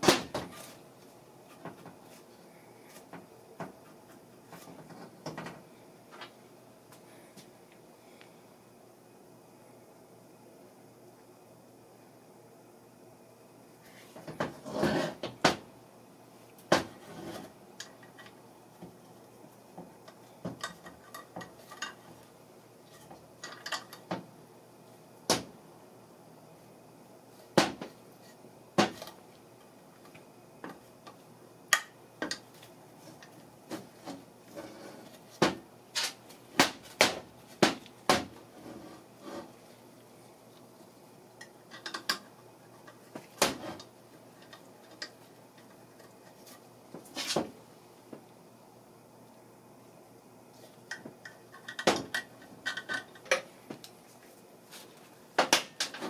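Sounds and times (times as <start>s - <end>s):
metal scrape: 17.0s - 17.5s, 38.5s - 39.5s.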